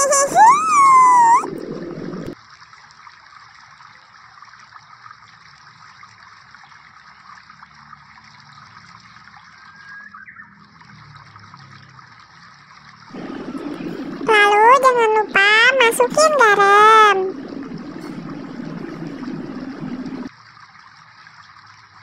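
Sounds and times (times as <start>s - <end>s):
water simmering in a wok: 2.3s - 14.3s, 17.2s - 22.0s
low sound: 13.2s - 20.3s.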